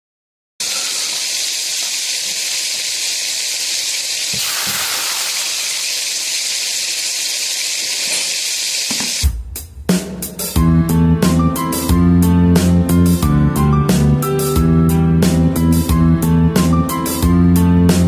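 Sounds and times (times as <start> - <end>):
fish sizzling in hot oil: 0.6 - 9.2.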